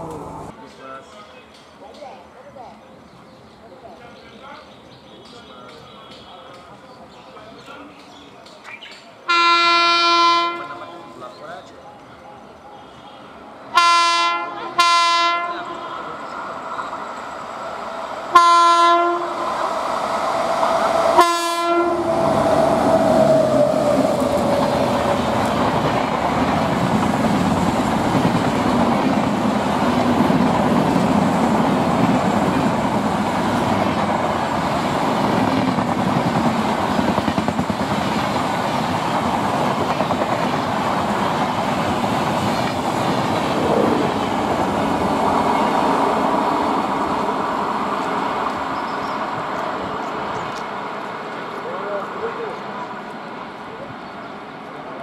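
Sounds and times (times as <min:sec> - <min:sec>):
locomotive horn blasts: 0:09.3 - 0:11.0, 0:13.7 - 0:16.0, 0:18.3 - 0:19.4, 0:21.2 - 0:22.1
train rumbling and clattering past: 0:10.0 - 0:55.0.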